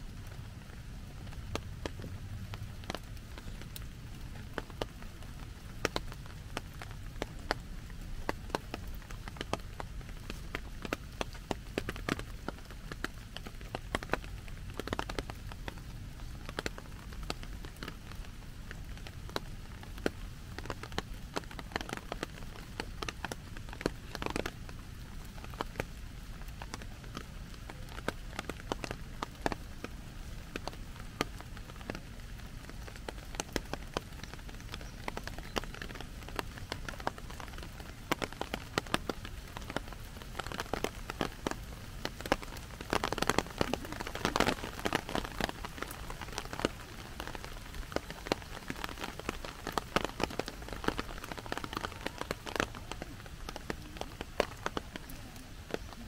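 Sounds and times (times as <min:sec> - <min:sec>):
rain drumming on plastic umbrella: 0:00.0 - 0:56.0.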